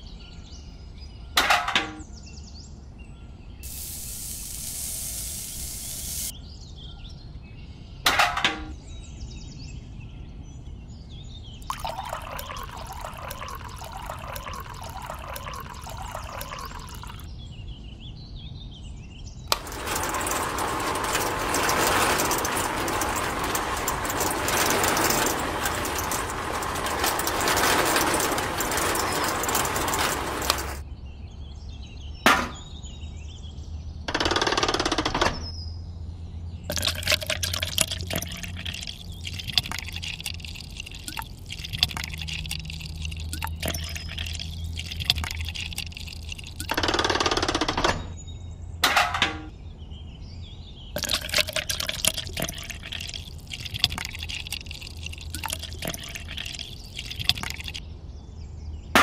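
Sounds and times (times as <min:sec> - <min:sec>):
water poured into mixer drum: 0:03.6 - 0:06.3, 0:11.6 - 0:17.3, 0:19.5 - 0:30.8, 0:36.7 - 0:46.8, 0:51.0 - 0:57.8
concrete mixer churning: 0:11.6 - 0:17.3, 0:19.5 - 0:30.8, 0:36.7 - 0:46.8, 0:51.0 - 0:57.8
wet concrete pouring into bucket: 0:11.6 - 0:17.3, 0:19.5 - 0:30.8, 0:36.7 - 0:46.8, 0:51.0 - 0:57.8.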